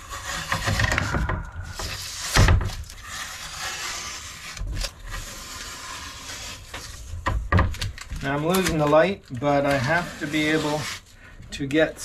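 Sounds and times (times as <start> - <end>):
masking tape peeling: 0.0 - 11.1.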